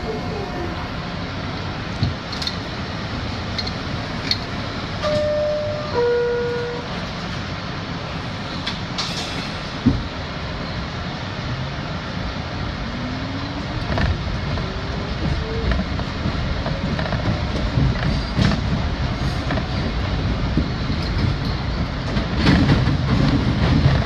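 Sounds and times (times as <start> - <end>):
train rumble: 0.0 - 24.0
two-tone door chime: 5.0 - 6.7.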